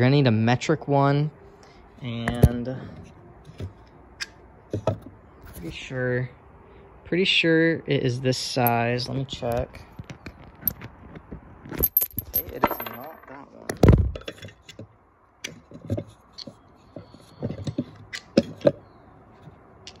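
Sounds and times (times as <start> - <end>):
metal tools clinking: 8.6 - 11.0, 11.7 - 13.4.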